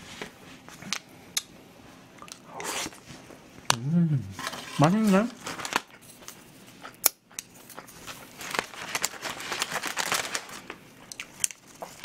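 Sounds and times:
lettuce leaves rustling: 0:04.4 - 0:05.9, 0:08.1 - 0:10.8
plastic container crinkling: 0:04.4 - 0:06.0, 0:08.1 - 0:10.8.

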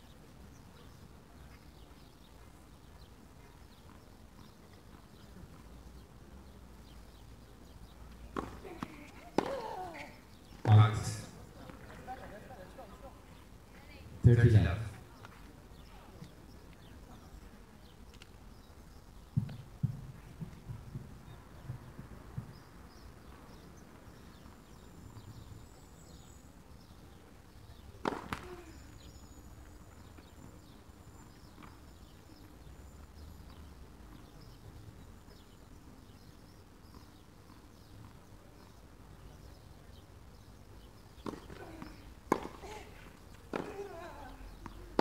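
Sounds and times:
tennis ball knock: 0:28.0 - 0:28.5, 0:41.2 - 0:42.6, 0:43.5 - 0:43.9.

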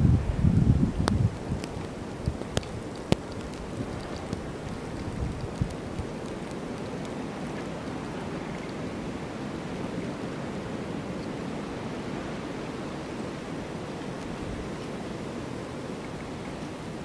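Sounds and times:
blizzard wind rushing: 0:00.0 - 0:17.0.

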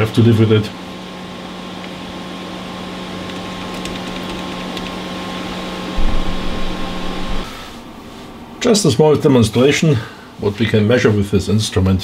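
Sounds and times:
electronic equipment humming: 0:00.9 - 0:09.1
fan-like hiss: 0:04.4 - 0:11.9
low rumble: 0:05.9 - 0:08.2.

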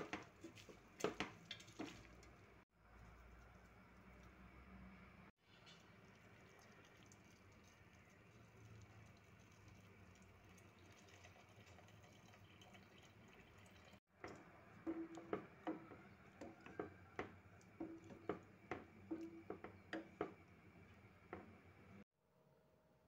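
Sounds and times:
spoon stirring stew: 0:14.2 - 0:21.8.

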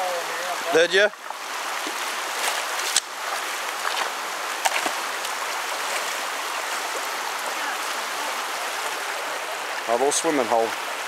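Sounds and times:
creek water running over riffle: 0:00.0 - 0:11.0
short sharp splashes: 0:01.8 - 0:05.0.

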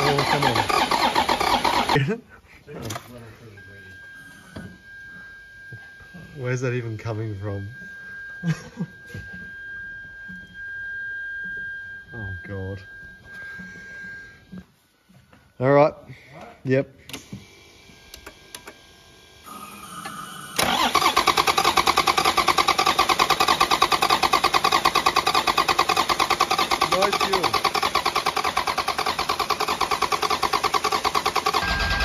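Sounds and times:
engine cranking on starter motor: 0:00.0 - 0:02.2, 0:17.0 - 0:18.8, 0:19.4 - 0:32.0.

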